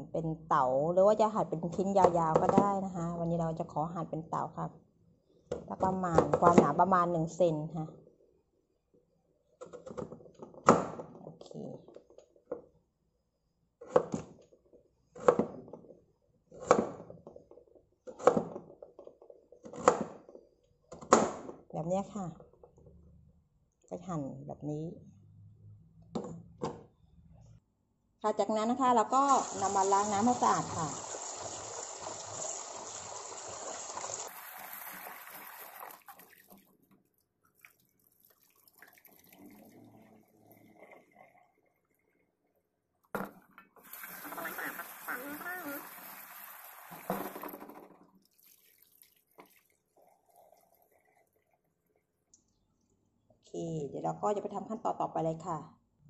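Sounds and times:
tap water running into bowl: 29.3 - 36.7, 37.5 - 41.7, 43.8 - 51.4
water trickling and dripping: 29.4 - 42.4, 48.2 - 52.9.

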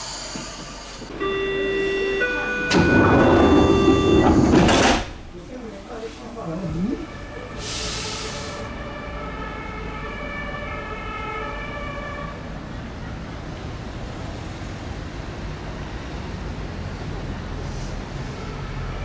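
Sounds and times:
electric train whining tones: 0.0 - 4.9
train rumbling in: 0.0 - 8.8.

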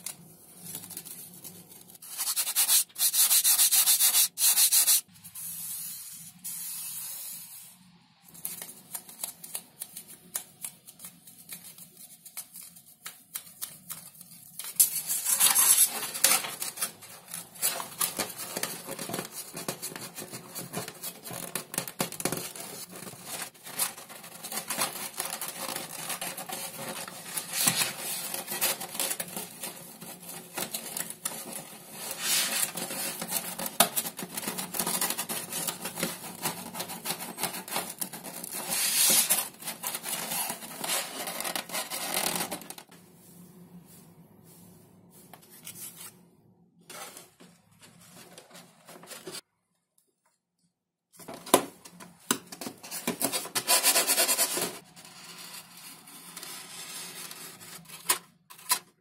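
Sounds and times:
sandpaper rasping on foam: 2.0 - 7.4.

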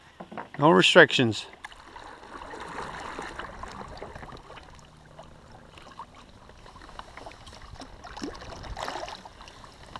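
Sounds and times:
water drips and small splashes: 1.4 - 9.9
water lapping against kayak hull: 1.5 - 9.9.

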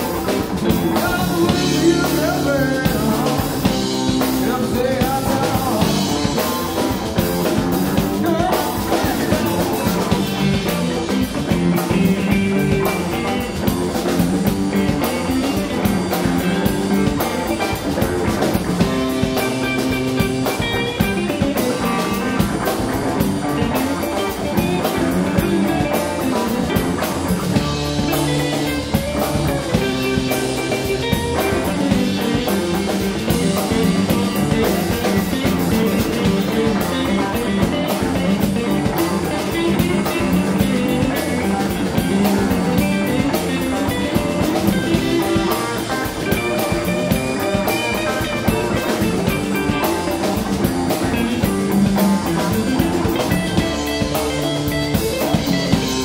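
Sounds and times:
bass guitar: 0.0 - 56.0
drum kit steady beat: 0.0 - 56.0
electric guitar with bent notes: 0.0 - 56.0.

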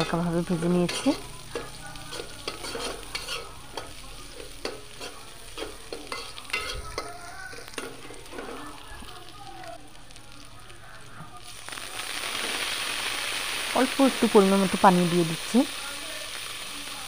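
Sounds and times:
light sizzle of frying: 0.0 - 17.0
spatula scraping a metal pot: 0.8 - 8.6.

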